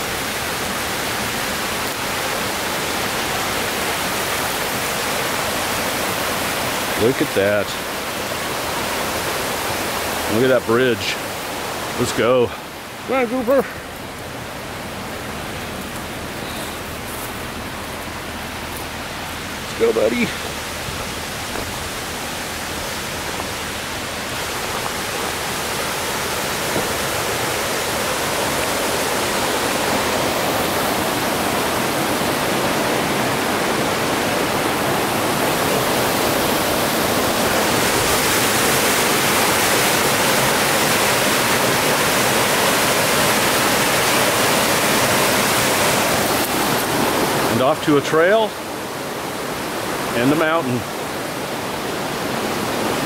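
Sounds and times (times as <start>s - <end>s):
creek rushing over boulders: 0.0s - 53.0s.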